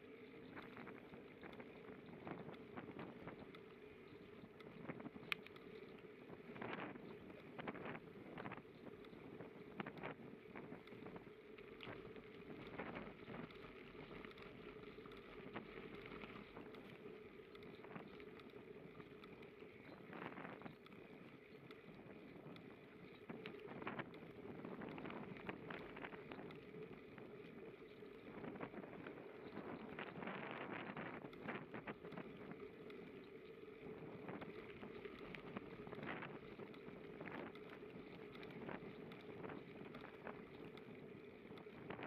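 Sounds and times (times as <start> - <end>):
bicycle clicks and rattles: 0.0 - 42.0
bicycle tyres rolling: 0.0 - 42.0
wind on microphone: 28.2 - 32.7, 33.8 - 42.0.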